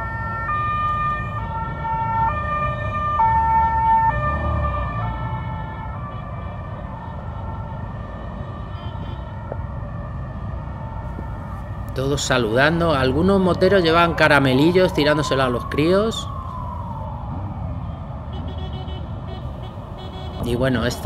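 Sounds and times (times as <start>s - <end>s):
two-tone emergency siren: 0.0s - 21.0s
motorcycles rumbling: 11.1s - 21.0s.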